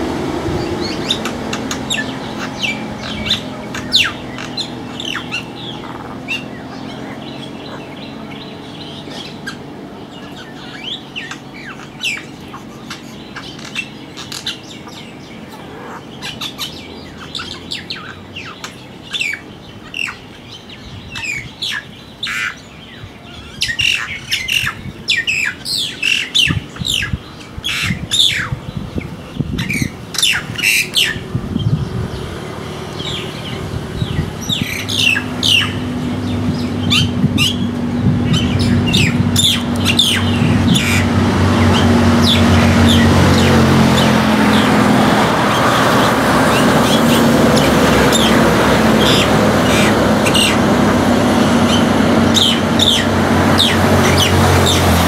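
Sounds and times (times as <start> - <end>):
passing road vehicle hum: 0.0 - 55.0
bird chirping and squawking: 0.6 - 20.3, 23.4 - 31.9, 33.0 - 55.0.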